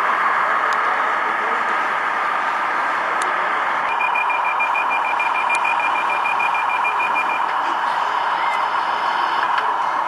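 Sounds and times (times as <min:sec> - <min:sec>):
rapid electronic beeping: 0:03.9 - 0:09.6.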